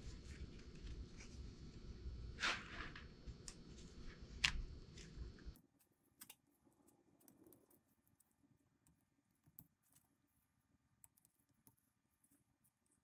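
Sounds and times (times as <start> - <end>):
faint clicks and taps: 4.4 - 13.0.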